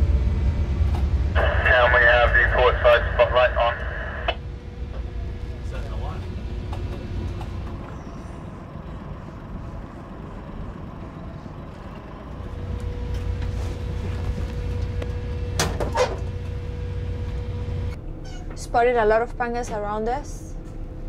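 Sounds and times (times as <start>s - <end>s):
ship engine low rumble: 0.0s - 21.0s
faint steady whine: 1.4s - 6.0s.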